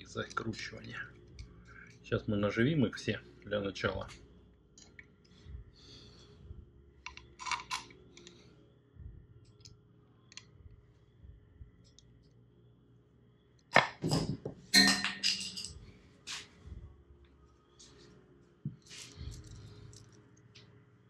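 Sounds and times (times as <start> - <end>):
metal bolts clicking and clinking: 7.1 - 8.3, 13.8 - 15.8.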